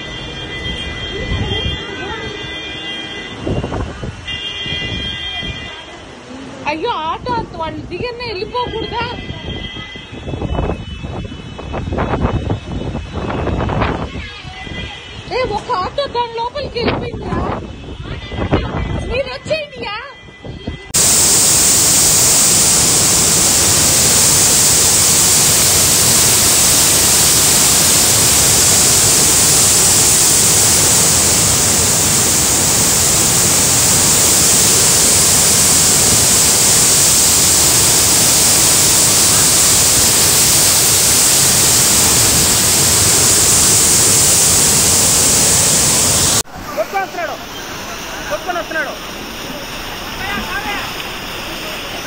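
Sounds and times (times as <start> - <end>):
floodwater rushing: 21.0 - 52.0.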